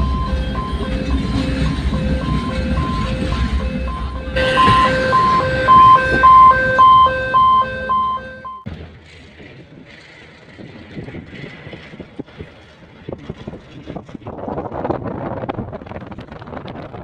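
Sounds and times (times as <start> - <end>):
level crossing alarm beeping: 0.0 - 8.7
train rumbling past: 0.0 - 16.2.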